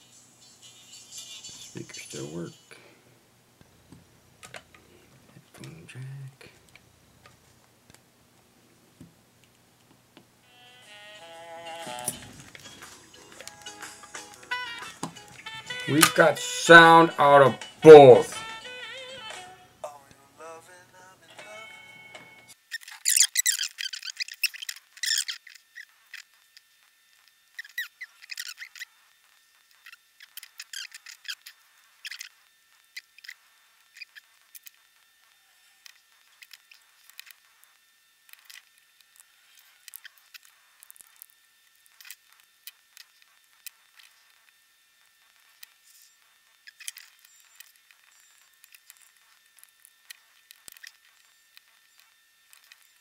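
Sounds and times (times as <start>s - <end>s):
plastic parts clicking and scraping: 22.7s - 26.6s, 35.8s - 44.2s.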